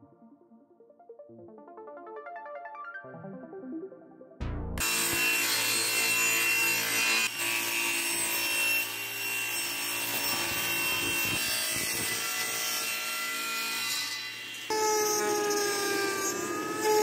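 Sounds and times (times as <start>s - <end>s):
circular saw cutting wood: 4.8s - 17.0s.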